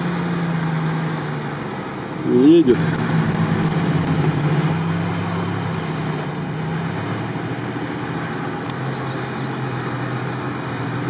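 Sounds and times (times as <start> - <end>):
off-road vehicle engine running: 0.0 - 11.0.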